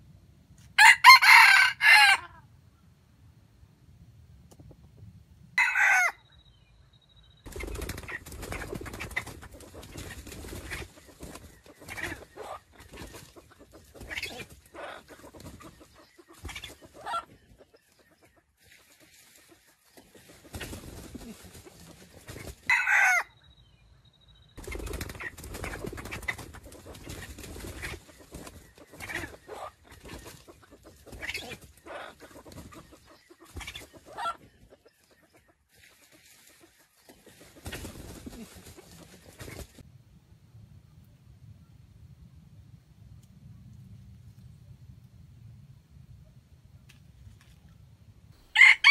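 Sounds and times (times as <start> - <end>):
rooster crowing: 0.8 - 2.4, 5.6 - 6.2, 22.7 - 23.4, 48.5 - 48.9
roosters clucking: 7.4 - 23.3, 24.6 - 39.8, 48.4 - 48.9.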